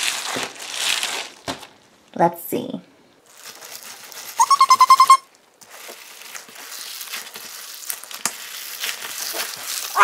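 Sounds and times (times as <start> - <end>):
rubber stress ball squeaking: 4.4 - 5.3
wet crackling squish of ball: 5.3 - 10.0.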